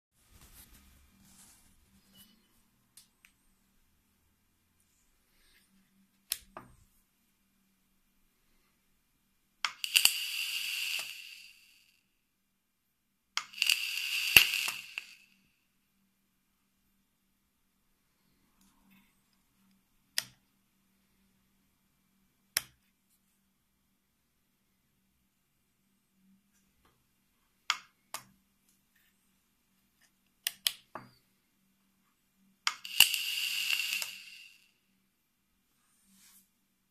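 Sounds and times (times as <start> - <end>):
e-liquid hissing on hot coil: 9.7 - 11.8, 13.4 - 15.4, 32.7 - 34.8.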